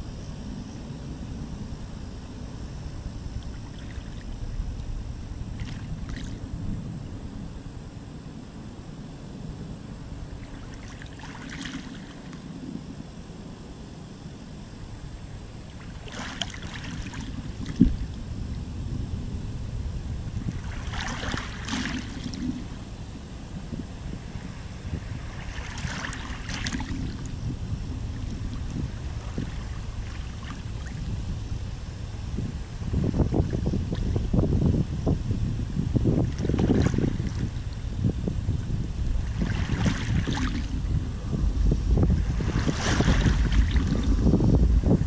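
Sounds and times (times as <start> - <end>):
wind rumble on microphone: 0.0 - 45.0
water splashes: 5.6 - 6.4, 10.4 - 12.4, 15.8 - 18.1, 20.5 - 22.8, 25.2 - 27.3, 36.2 - 37.6, 39.2 - 40.9, 42.0 - 44.3
waves lapping over pebbles: 15.9 - 17.8, 20.6 - 22.6, 39.2 - 40.8.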